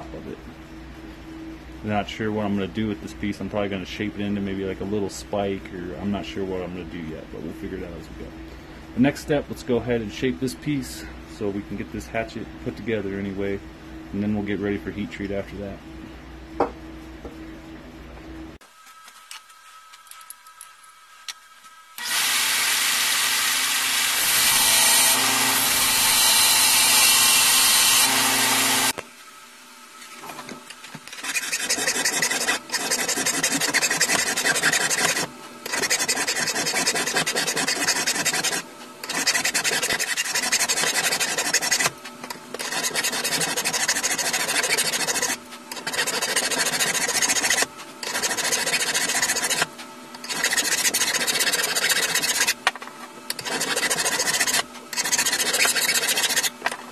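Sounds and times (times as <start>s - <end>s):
belt grinder grinding steel: 22.0s - 29.0s, 31.1s - 52.6s, 53.3s - 56.6s
file rasping on steel rod: 31.1s - 52.6s, 53.3s - 56.6s.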